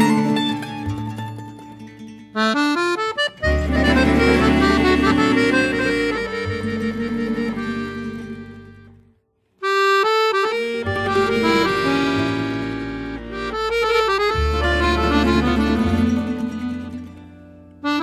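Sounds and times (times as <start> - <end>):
instrumental melody: 0.0 - 18.0
bass line: 3.2 - 9.2, 10.6 - 18.0.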